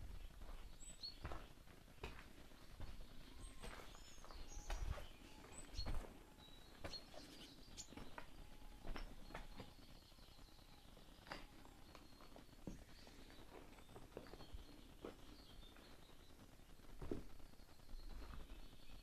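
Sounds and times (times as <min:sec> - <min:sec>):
footsteps crunching over rubble: 0:00.0 - 0:09.8.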